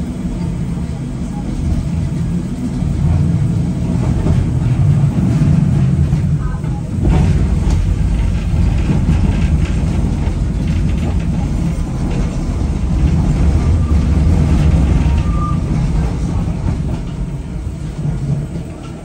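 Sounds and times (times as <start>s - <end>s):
tram wheels rumbling on rails: 0.0s - 19.0s
faint wheel squeal: 15.1s - 15.8s.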